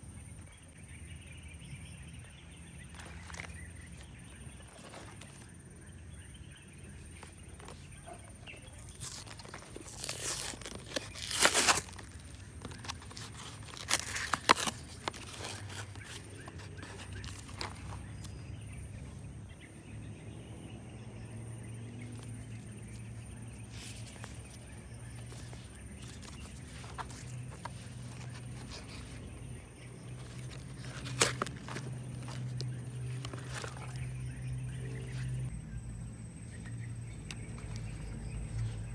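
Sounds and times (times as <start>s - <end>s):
cardboard and paper rustling: 2.8s - 5.9s, 6.8s - 19.1s, 22.0s - 35.5s
cardboard tearing: 8.7s - 18.4s, 30.0s - 34.3s.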